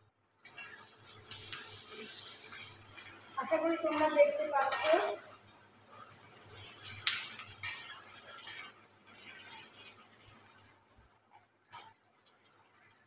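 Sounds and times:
vegetables sizzling in a wok: 0.0 - 13.0
spatula scraping a pan: 0.5 - 10.7.

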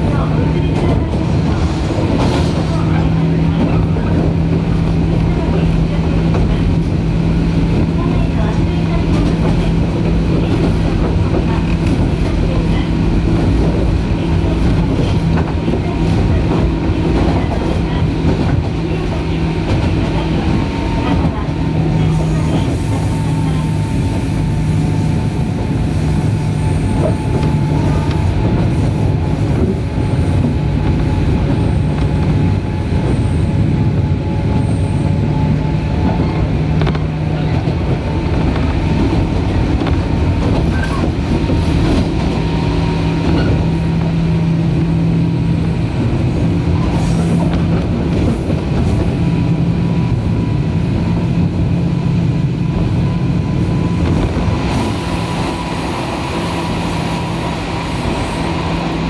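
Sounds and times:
wheels rumbling on rail: 0.0 - 59.0
faint clicks at rail joints: 27.0 - 28.7, 36.0 - 42.3.

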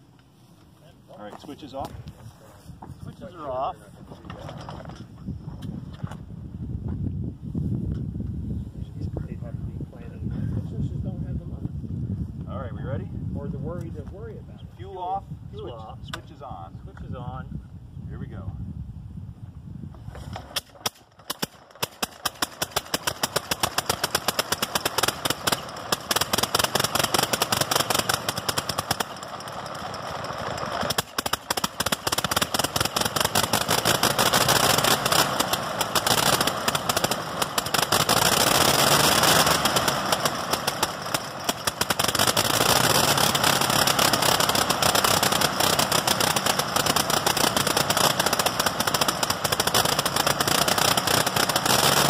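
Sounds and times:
rotary aircraft engine running: 19.9 - 52.0.

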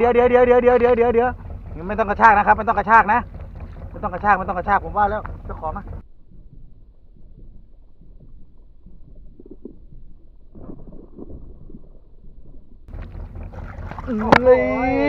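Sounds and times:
boat noise: 0.0 - 15.0
muffled wind rumble: 0.0 - 15.0.

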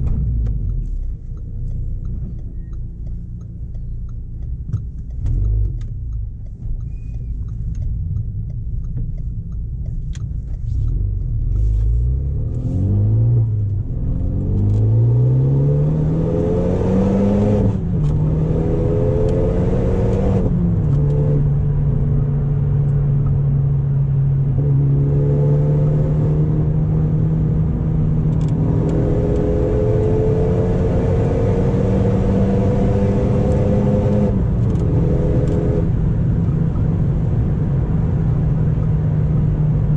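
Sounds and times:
car engine revving through gears: 4.6 - 6.8, 10.2 - 39.9.

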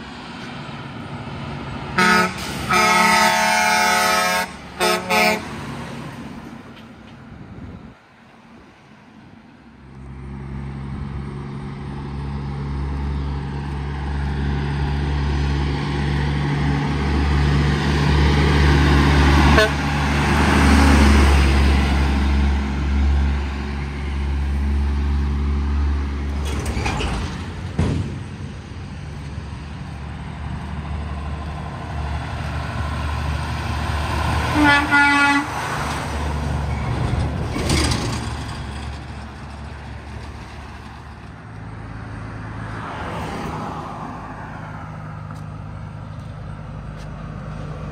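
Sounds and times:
diesel trucks driving past: 0.0 - 47.9
truck horn blast: 1.9 - 5.6, 19.4 - 20.0, 34.4 - 35.7.

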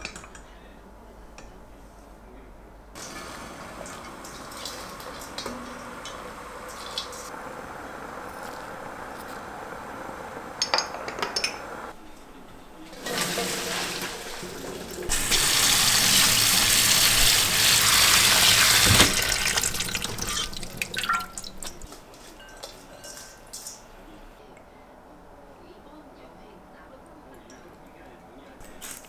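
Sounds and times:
tap water running into sink: 3.0 - 7.3, 13.0 - 21.9.

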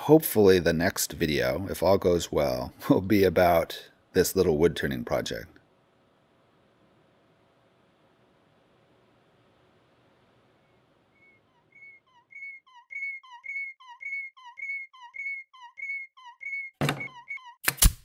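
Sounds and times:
whistle-like chirps: 10.6 - 17.6.

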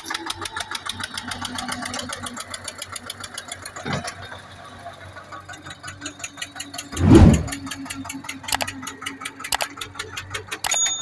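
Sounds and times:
tractor diesel engine knocking: 0.0 - 6.9, 7.6 - 10.7
loud low rush: 7.0 - 7.6.

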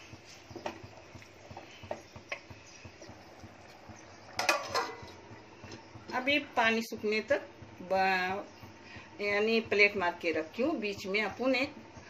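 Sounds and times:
metal plate clattering on pot: 4.4 - 5.2
metal spoon scraping pot: 4.4 - 5.2.

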